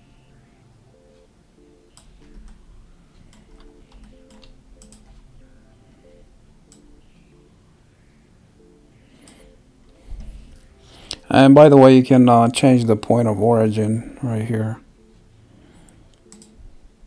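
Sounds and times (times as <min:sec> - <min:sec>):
quiet background music: 0:00.0 - 0:17.0
keyboard and mouse clicking: 0:01.9 - 0:02.6, 0:03.2 - 0:05.2, 0:06.7 - 0:06.9, 0:15.8 - 0:16.6.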